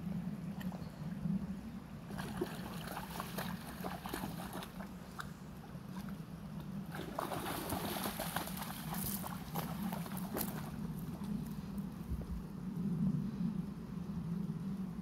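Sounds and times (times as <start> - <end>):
dog splashing through water: 2.1 - 5.3, 6.9 - 10.8.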